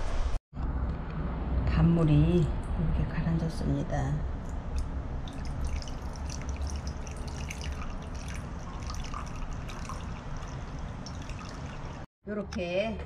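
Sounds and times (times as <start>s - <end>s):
low steady hum: 0.6s - 13.0s
water trickling and dripping: 4.7s - 12.1s.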